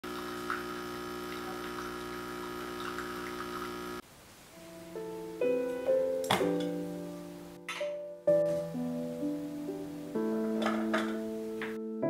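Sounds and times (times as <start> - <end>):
soft piano notes: 4.5 - 12.0.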